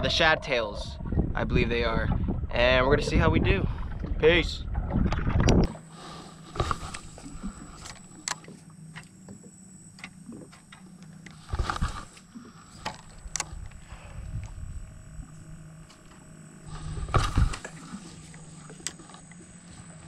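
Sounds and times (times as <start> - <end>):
faint steady hum: 0.0 - 20.0
hand rubbing on microphone: 11.4 - 12.2, 16.7 - 18.7.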